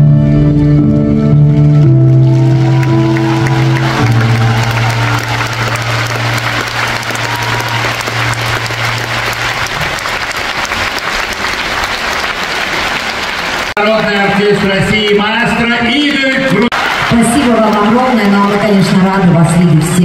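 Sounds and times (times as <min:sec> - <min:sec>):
held music chords: 0:00.0 - 0:10.9
large audience applauding: 0:01.5 - 0:19.6.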